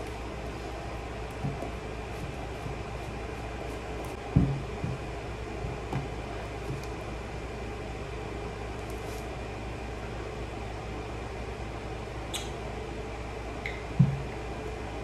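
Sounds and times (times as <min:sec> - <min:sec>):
indoor background hum: 0:00.0 - 0:15.0.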